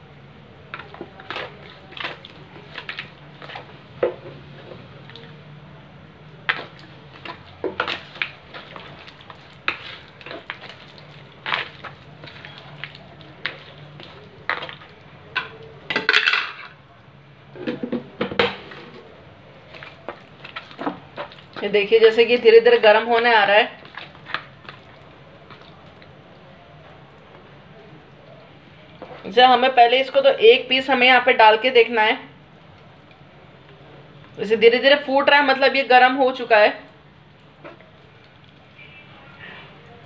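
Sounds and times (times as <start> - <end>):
oil crackling and popping: 0.7 - 5.4, 6.4 - 16.4, 18.4 - 22.4, 23.0 - 29.4.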